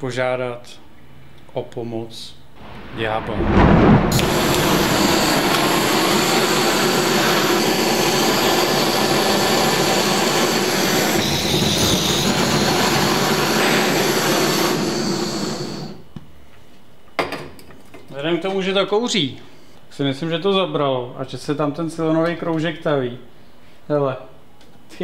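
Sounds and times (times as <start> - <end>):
blowtorch flame hissing: 4.1 - 16.1.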